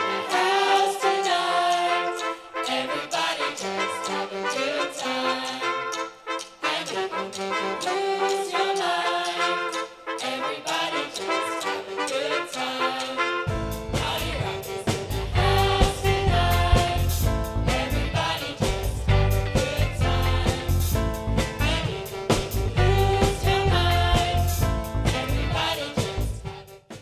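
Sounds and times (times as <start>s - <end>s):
group singing: 0.0s - 26.6s
trumpet section: 0.0s - 27.0s
band low accompaniment: 13.5s - 26.5s.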